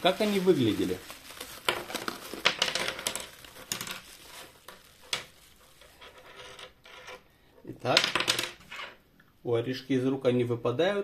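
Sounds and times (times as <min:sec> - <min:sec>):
bubble wrap crinkling: 0:00.0 - 0:06.4.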